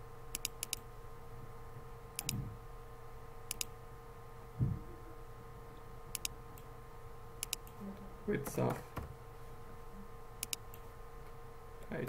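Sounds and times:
faint electrical hum: 0:00.0 - 0:12.0
computer mouse clicking: 0:00.3 - 0:00.8, 0:03.5 - 0:03.7, 0:06.1 - 0:06.7, 0:07.4 - 0:07.8, 0:10.4 - 0:10.8.

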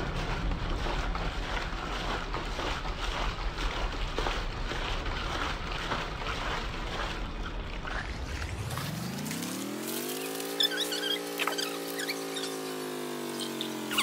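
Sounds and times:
noisy churning rumble: 0:00.0 - 0:10.6
electric motor whine: 0:08.3 - 0:14.0.

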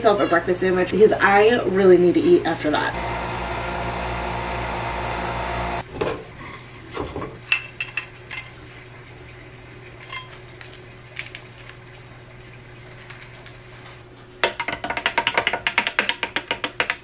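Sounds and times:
coffee machine pump buzzing: 0:02.9 - 0:05.8.

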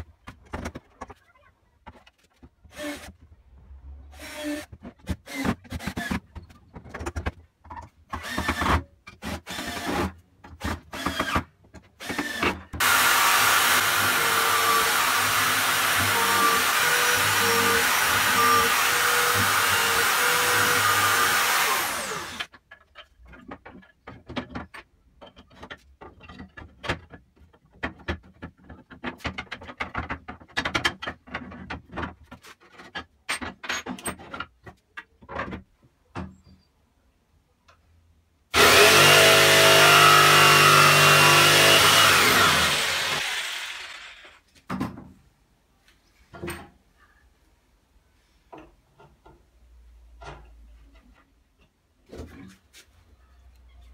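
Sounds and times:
drill boring through wood: 0:09.2 - 0:10.0, 0:12.0 - 0:22.5, 0:38.6 - 0:44.4
cordless drill driving screws: 0:12.0 - 0:22.5, 0:38.6 - 0:44.4.

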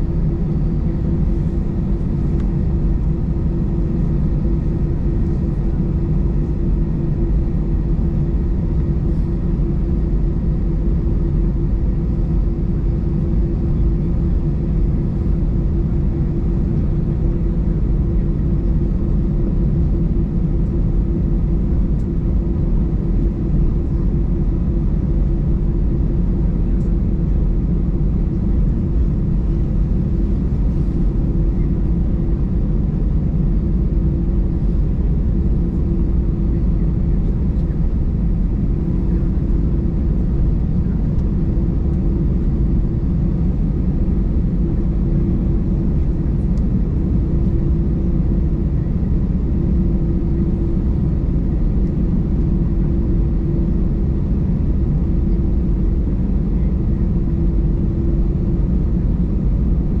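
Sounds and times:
jet engines rumbling: 0:21.8 - 0:52.4
steady cabin hum: 0:23.2 - 0:53.7.

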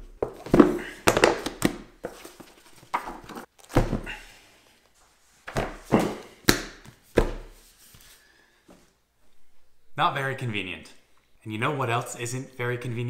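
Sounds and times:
books thudding onto felt table: 0:00.2 - 0:02.2, 0:02.9 - 0:04.1, 0:05.5 - 0:07.6
book covers scuffing and sliding: 0:00.2 - 0:08.9.

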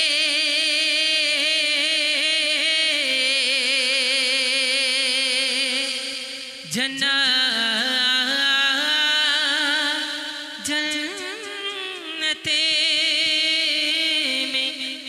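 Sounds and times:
man singing into a microphone: 0:00.0 - 0:15.0
singer breathing: 0:10.0 - 0:10.6.

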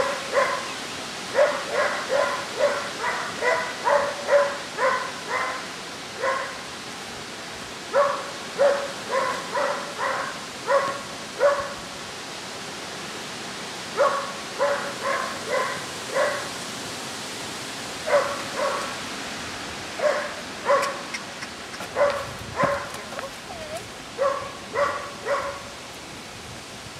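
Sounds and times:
dog barking: 0:00.0 - 0:06.6, 0:07.9 - 0:11.8, 0:13.9 - 0:16.5, 0:18.0 - 0:19.0, 0:20.0 - 0:21.1, 0:21.9 - 0:25.7.

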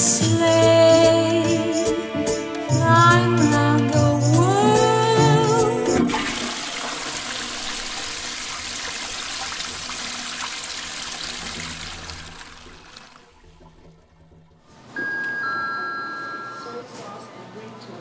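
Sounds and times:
person singing: 0:00.0 - 0:06.3
toilet flushing: 0:04.5 - 0:14.7.

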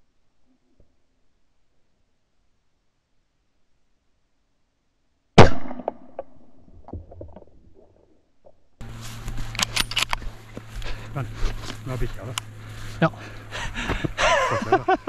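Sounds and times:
rifle shot: 0:05.4 - 0:06.4
low steady hum: 0:08.8 - 0:15.0
clicks and rustling: 0:08.9 - 0:12.5.

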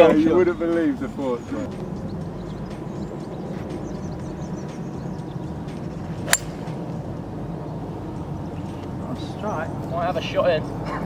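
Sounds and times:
golf club striking ball: 0:06.2 - 0:07.0.

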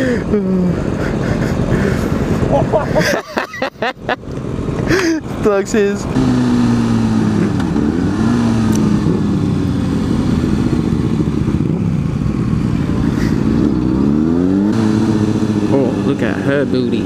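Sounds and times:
motorcycle engine: 0:00.0 - 0:17.0
wind rushing over microphone: 0:06.4 - 0:16.1.

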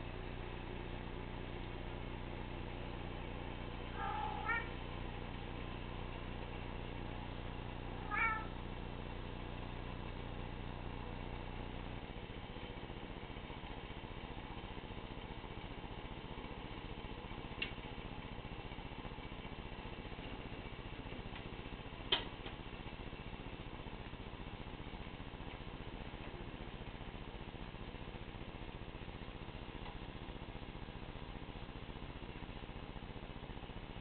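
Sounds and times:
cat meowing: 0:03.9 - 0:04.8, 0:08.0 - 0:08.5.

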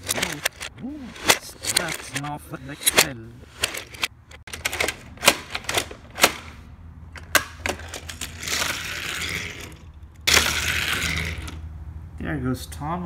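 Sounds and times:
toy engine rolling on plastic track: 0:00.0 - 0:05.0, 0:07.7 - 0:11.6
plastic toy mechanism clicks: 0:00.0 - 0:06.6.

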